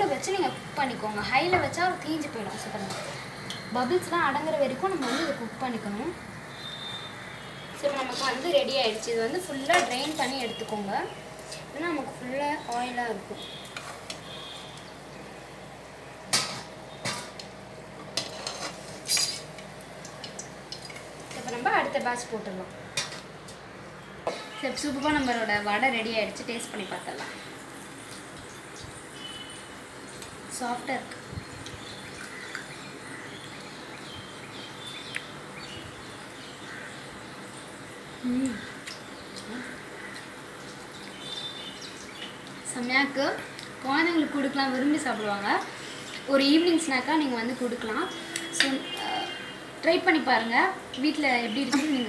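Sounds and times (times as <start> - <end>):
room ambience hiss: 0.0 - 52.0
metal utensils clanking on pan: 2.6 - 3.7, 4.9 - 5.4, 7.8 - 10.8, 16.3 - 22.1, 22.9 - 23.3
faint high chirps: 6.5 - 7.8.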